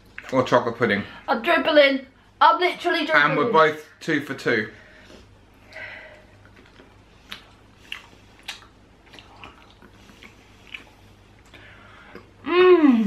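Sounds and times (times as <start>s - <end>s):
chewing mouth clicks and smacks: 0.0s - 0.4s, 6.4s - 12.4s.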